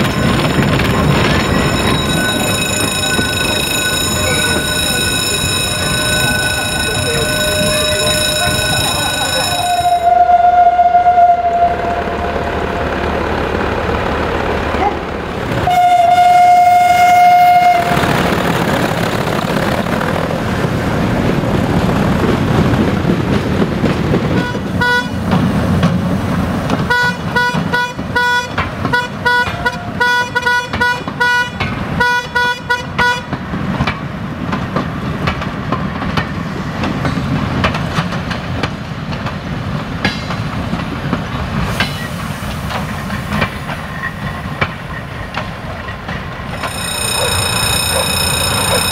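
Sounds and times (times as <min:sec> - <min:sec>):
level-crossing bell ringing: 0:00.0 - 0:10.2, 0:46.5 - 0:48.9
locomotive engine rumbling: 0:00.0 - 0:32.0, 0:33.3 - 0:48.9
locomotive horn blast: 0:07.5 - 0:13.0, 0:15.6 - 0:18.2, 0:26.9 - 0:33.2.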